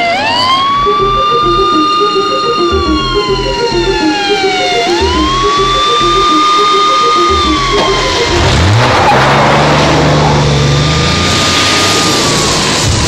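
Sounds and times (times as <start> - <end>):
siren wailing: 0.0 - 10.8
music with thudding bass beat: 0.8 - 6.4, 7.2 - 8.6.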